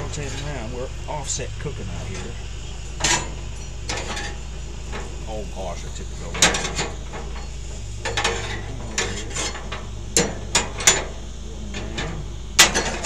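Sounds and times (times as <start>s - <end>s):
steady low hum: 0.0s - 13.0s
metal tongs scraping grill grate: 3.0s - 5.3s, 6.3s - 11.2s.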